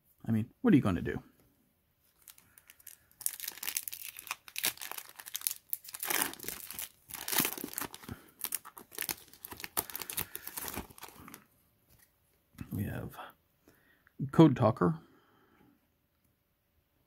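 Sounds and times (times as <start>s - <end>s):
foil wrapper tearing and crinkling: 2.2s - 11.4s.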